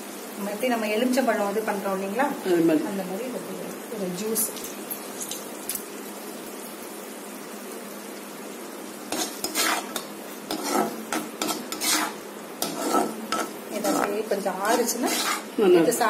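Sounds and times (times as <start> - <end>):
food sizzling in a pan: 0.0 - 16.0
spatula scraping a pan: 9.1 - 15.7.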